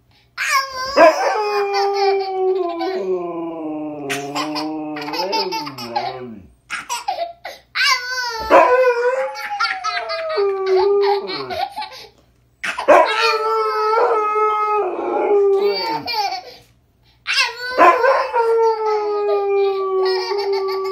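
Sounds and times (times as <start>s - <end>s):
husky howling: 0.8s - 6.5s, 8.4s - 11.6s, 12.9s - 16.1s, 17.7s - 20.9s
toddler giggling and laughing: 4.1s - 8.5s, 9.4s - 12.1s, 15.6s - 16.6s.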